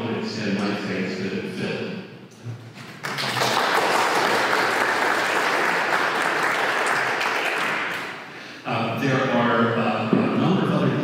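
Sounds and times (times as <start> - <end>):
audience applauding: 2.8 - 8.3.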